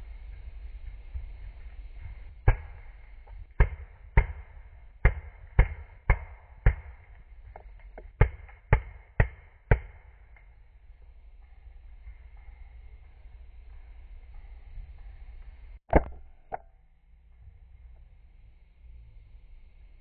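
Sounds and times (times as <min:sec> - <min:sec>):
paintball marker pops: 0:15.9 - 0:16.7.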